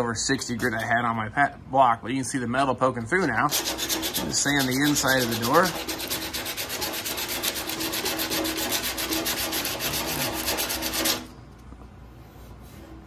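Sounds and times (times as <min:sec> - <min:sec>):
sandpaper rasping on metal: 0:03.5 - 0:11.3.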